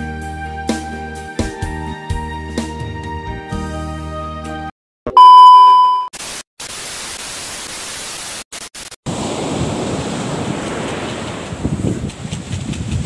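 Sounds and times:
test-tone beep: 5.1s - 6.1s
tv static hiss: 6.2s - 9.0s
surf breaking on beach: 9.1s - 13.0s
wind on microphone: 9.4s - 13.0s.

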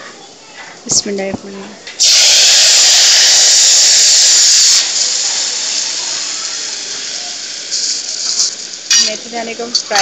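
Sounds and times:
seeds sizzling in hot oil: 2.0s - 10.0s.

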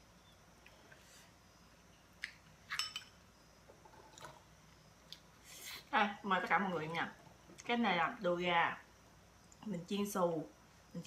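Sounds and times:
spoon clinking ceramic bowl: 2.7s - 3.2s.

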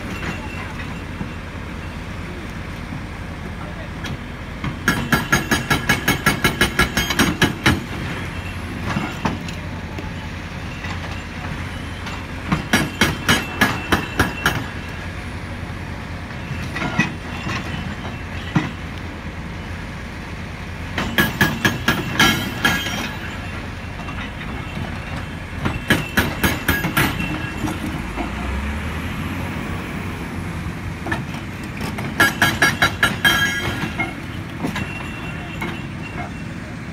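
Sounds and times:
diesel engine running: 0.0s - 36.9s
hydraulic breaker hammering rock: 4.6s - 8.2s, 12.0s - 14.9s, 20.9s - 28.4s, 31.2s - 36.4s.

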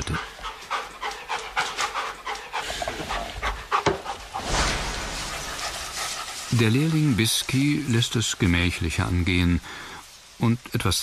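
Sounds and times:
dog panting: 0.0s - 4.5s, 5.2s - 7.2s.

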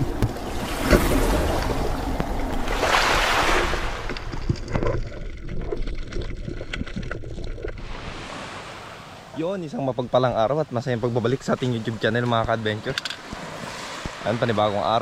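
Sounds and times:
underwater clicks and crackles: 0.0s - 8.0s, 11.6s - 14.2s
sea water rushing: 0.0s - 15.0s.

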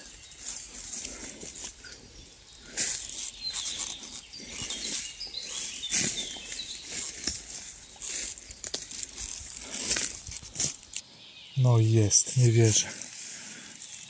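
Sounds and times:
faint bird chirps: 0.0s - 9.9s
footsteps through dry leaves: 0.0s - 11.0s, 12.1s - 14.0s.

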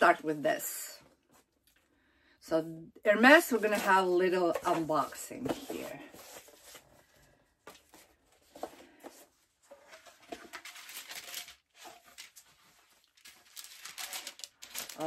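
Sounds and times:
tissue paper rustling: 7.9s - 15.0s.

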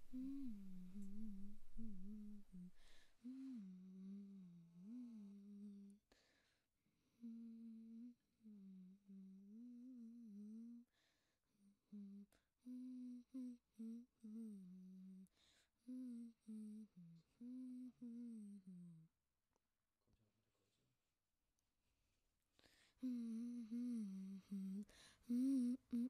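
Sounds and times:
boy humming softly: 0.0s - 6.2s, 7.1s - 11.0s, 11.6s - 19.1s, 22.6s - 26.0s
quick breaths: 2.7s - 3.2s.

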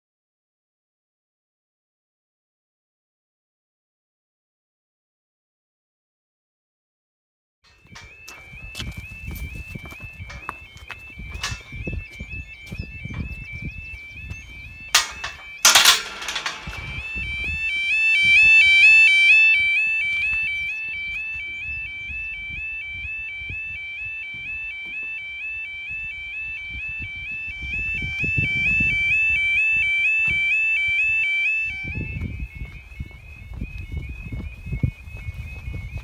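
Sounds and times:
warbling crossing alarm: 7.7s - 36.0s
metal gate latch clanking: 11.4s - 11.7s, 15.0s - 17.2s.

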